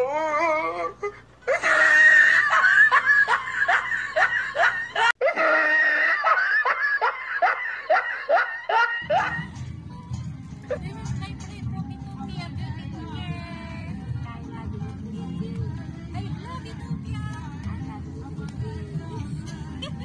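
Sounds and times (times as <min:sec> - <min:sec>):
women laughing hard: 0:01.5 - 0:09.5.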